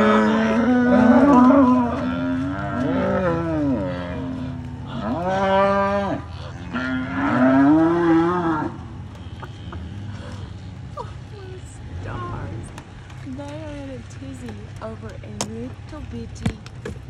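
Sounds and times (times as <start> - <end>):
cows mooing: 0.0 - 12.8.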